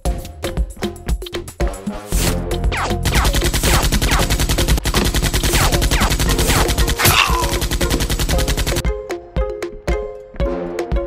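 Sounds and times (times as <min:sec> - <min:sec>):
rapid minigun fire: 0:02.7 - 0:08.8.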